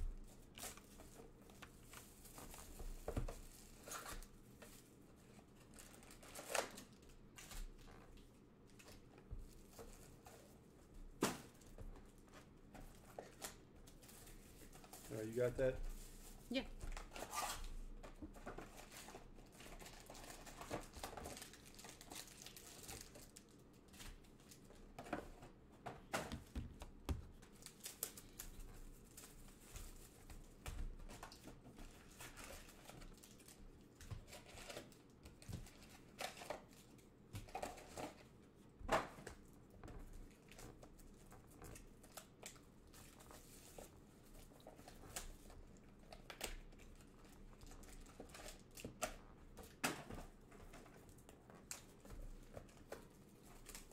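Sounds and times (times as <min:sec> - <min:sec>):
plastic packaging crinkling: 0:18.8 - 0:24.8, 0:27.4 - 0:30.2, 0:31.2 - 0:38.2.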